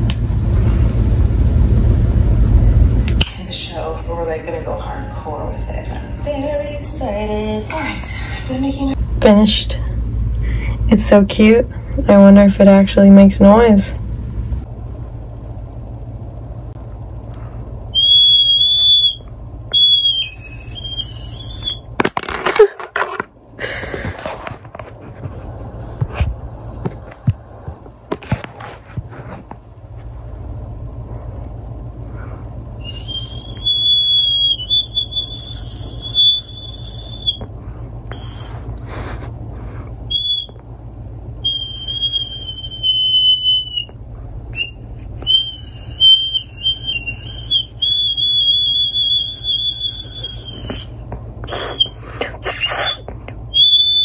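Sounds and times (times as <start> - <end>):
toy recorder whistle note: 18.0 - 21.8, 32.8 - 37.4, 40.1 - 40.6, 41.4 - 43.9, 44.6 - 50.9, 53.6 - 54.0.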